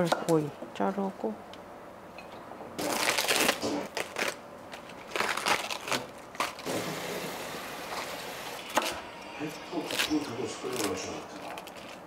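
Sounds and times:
cabbage leaves snapping: 2.8s - 6.7s, 9.9s - 12.0s
cling film crinkling: 2.8s - 8.8s, 9.8s - 12.0s
steady hiss: 6.6s - 11.4s.

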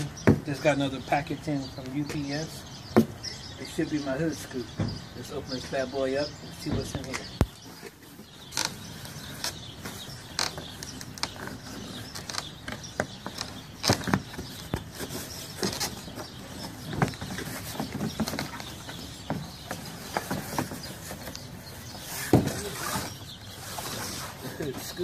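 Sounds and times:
cardboard box scraping and rustling: 7.6s - 25.0s.

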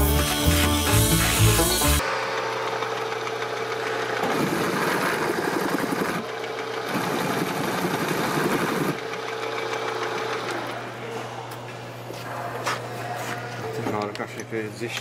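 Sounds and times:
drill press motor humming: 0.0s - 11.0s.

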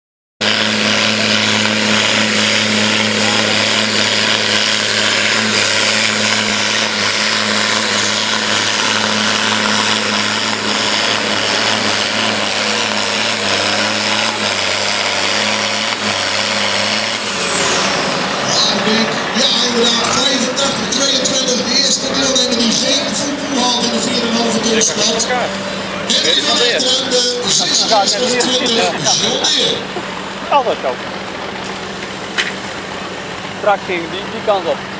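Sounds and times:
high whine: 0.4s - 34.9s
tractor diesel engine at full throttle: 0.4s - 34.9s.

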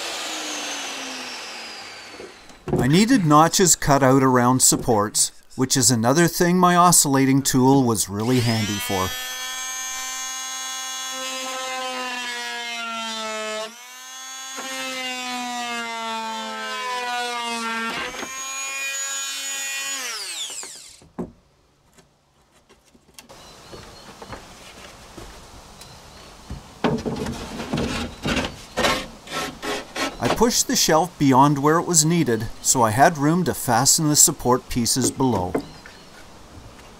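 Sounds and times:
oscillating multi-tool buzzing: 8.3s - 12.4s.

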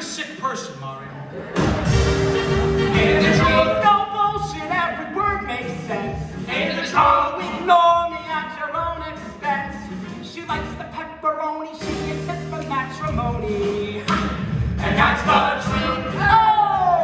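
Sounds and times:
light music: 1.6s - 17.0s
men singing doo-wop: 2.6s - 11.0s, 11.8s - 17.0s.

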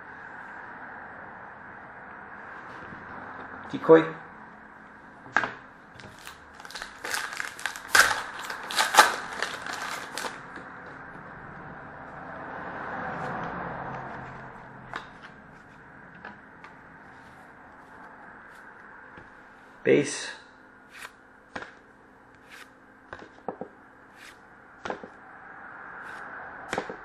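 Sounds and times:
cards rustling: 6.0s - 10.6s
wrapper crinkling: 6.0s - 10.6s.

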